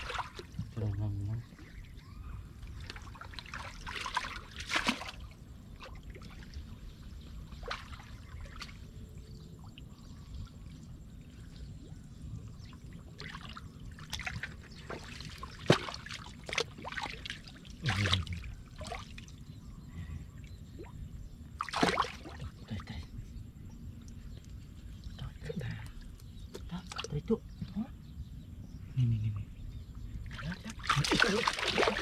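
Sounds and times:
water splashing and trickling: 0.0s - 19.5s, 20.3s - 23.1s, 23.9s - 27.9s, 30.2s - 32.0s
steady low rumble: 5.2s - 15.6s, 16.2s - 31.1s.

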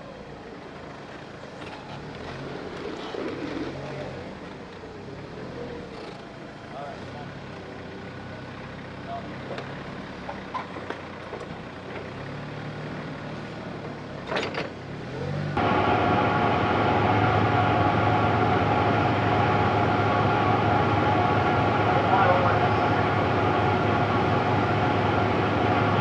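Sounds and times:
forklift humming: 0.0s - 26.0s
steady hums: 15.6s - 26.0s.

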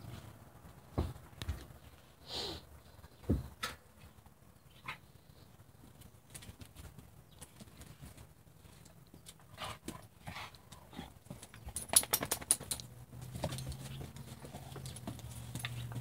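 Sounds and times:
claws scrabbling on concrete: 5.8s - 16.0s.

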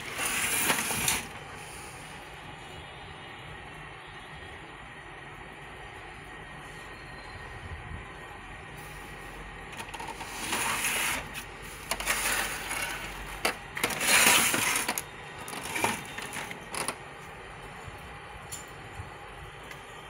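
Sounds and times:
plastic clattering and clicks: 9.7s - 10.6s, 11.8s - 17.0s.

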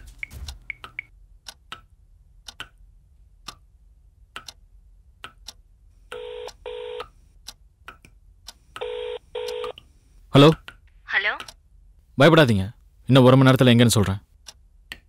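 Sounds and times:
steady ticking: 0.1s - 5.8s, 14.3s - 15.0s.

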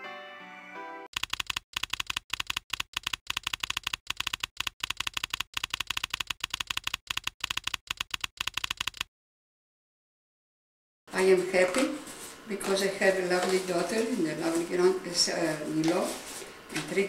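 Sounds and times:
typewriter keys clacking: 1.1s - 9.1s.

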